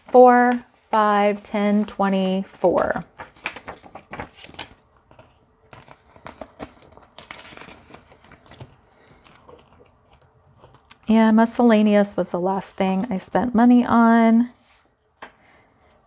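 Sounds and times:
plastic envelope crinkling: 0:00.0 - 0:11.2
banknotes rustling: 0:00.0 - 0:16.0.

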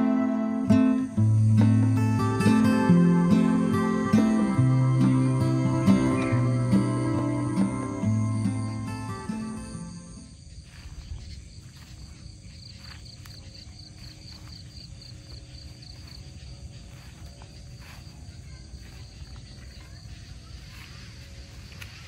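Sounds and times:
background music: 0:00.0 - 0:10.3
insect chirping: 0:00.0 - 0:22.0.

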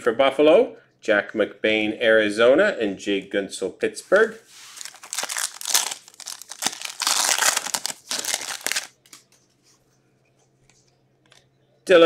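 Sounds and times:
foil wrapper tearing and crinkling: 0:04.6 - 0:09.0.

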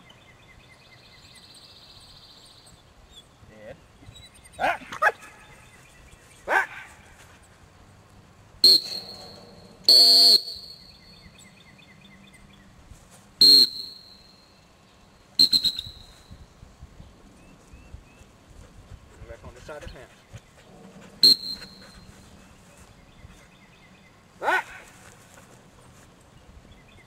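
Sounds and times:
dog whistle blasts: 0:08.6 - 0:10.9, 0:13.4 - 0:14.2, 0:15.4 - 0:16.1, 0:21.2 - 0:21.9
short calls: 0:08.6 - 0:11.1, 0:13.4 - 0:14.4, 0:15.4 - 0:16.2, 0:21.2 - 0:22.1.

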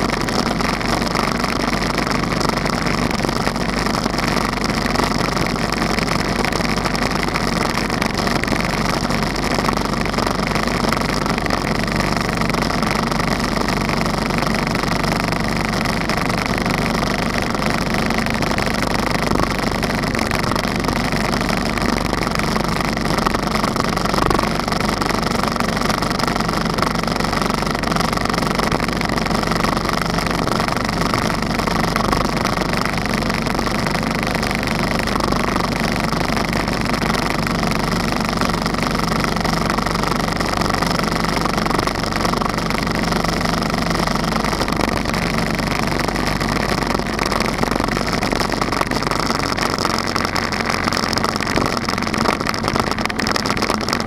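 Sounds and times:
motorcycle engine running: 0:00.0 - 0:54.0
road noise: 0:00.0 - 0:54.0
wind noise: 0:38.4 - 0:54.0.

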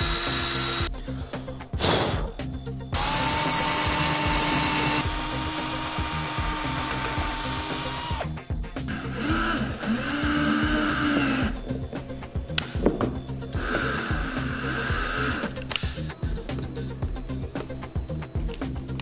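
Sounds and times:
cordless drill drilling into wood: 0:00.0 - 0:00.9, 0:03.0 - 0:08.3, 0:08.9 - 0:11.6, 0:13.6 - 0:15.6.

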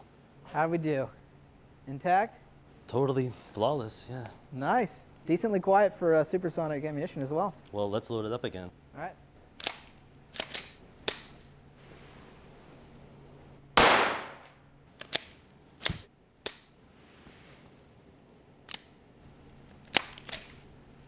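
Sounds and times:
pistol slide racking clicks: 0:09.6 - 0:11.3, 0:15.0 - 0:16.6, 0:19.9 - 0:20.6
suppressed pistol shot: 0:13.8 - 0:14.5.

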